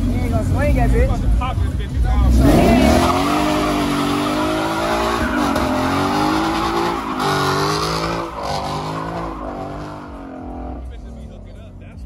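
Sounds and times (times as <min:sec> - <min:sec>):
car engine revving high: 0:02.1 - 0:11.1
tyres squealing: 0:02.4 - 0:10.8.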